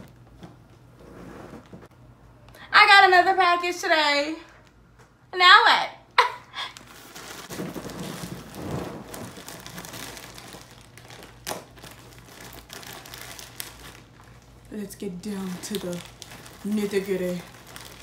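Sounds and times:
plastic package crinkling: 0:06.6 - 0:18.0.

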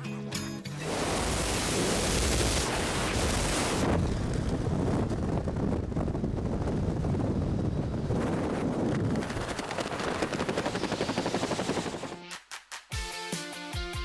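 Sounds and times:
wind buffeting microphone: 0:01.2 - 0:12.1.

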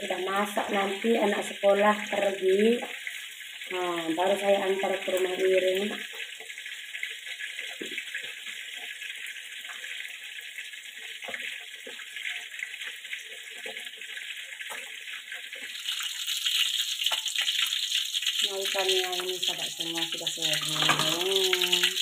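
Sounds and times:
fish sizzling in hot oil: 0:00.0 - 0:22.0.

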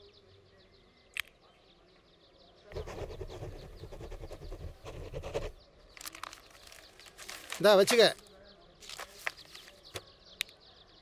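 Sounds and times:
sharp click: 0:01.1 - 0:01.4.

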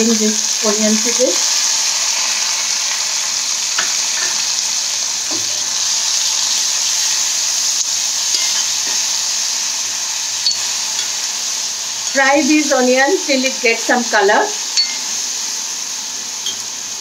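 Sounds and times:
onion paste sizzling in oil: 0:00.0 - 0:17.0
metal spoon clicking on pan: 0:08.3 - 0:08.6, 0:10.4 - 0:11.2, 0:14.8 - 0:15.0.

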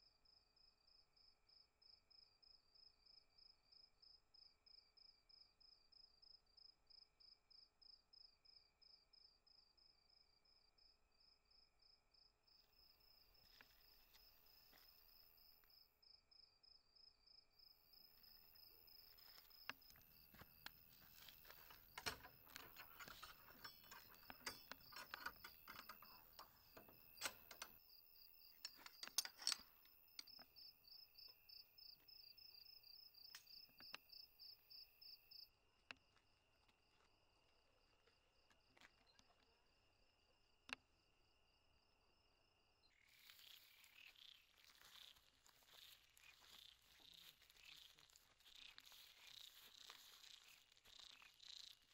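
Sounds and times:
crickets chirping: 0:00.2 - 0:51.9
clicks and rustles: 0:18.2 - 0:30.5, 0:43.1 - 0:51.9.

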